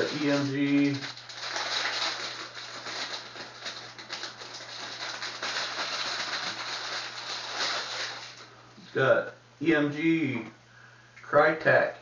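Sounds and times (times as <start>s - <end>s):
plastic packaging crinkling: 0.0s - 8.5s
steady low hum: 0.0s - 12.0s.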